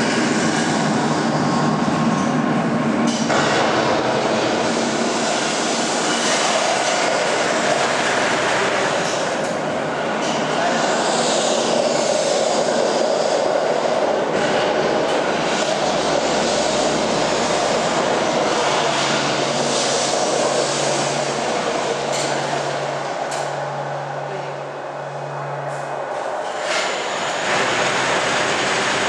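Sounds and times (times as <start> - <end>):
vehicle rumble and hiss: 0.0 - 29.0.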